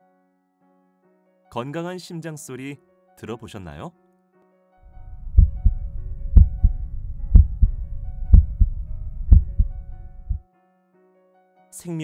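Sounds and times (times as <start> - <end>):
heartbeat lub-dub: 5.0 - 10.4.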